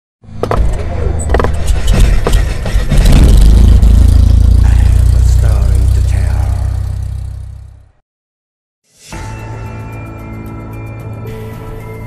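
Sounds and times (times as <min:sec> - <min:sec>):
deep loud rumble: 0:00.7 - 0:07.9.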